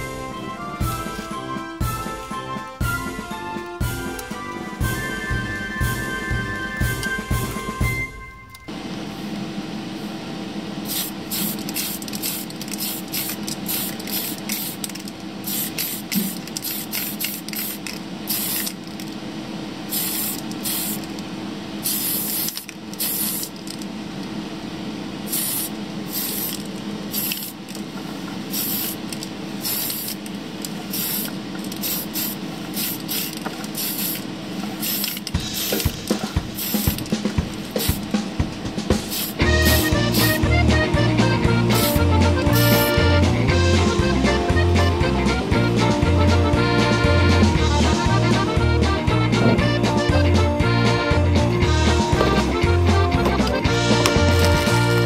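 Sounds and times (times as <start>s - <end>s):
steady low hum: 2.8s - 55.0s
aerosol spray can hissing: 10.8s - 18.8s, 19.9s - 21.2s, 21.8s - 23.8s, 25.2s - 27.7s, 28.5s - 30.3s, 30.9s - 38.2s, 38.9s - 40.4s, 41.7s - 43.1s, 53.2s - 55.0s.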